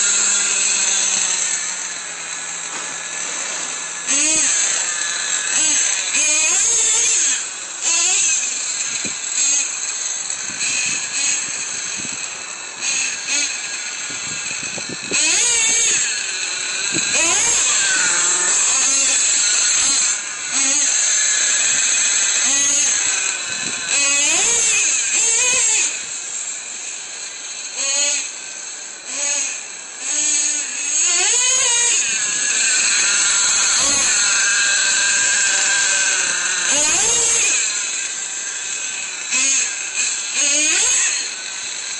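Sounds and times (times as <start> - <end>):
small nitro engine revving: 10.5 - 26.2.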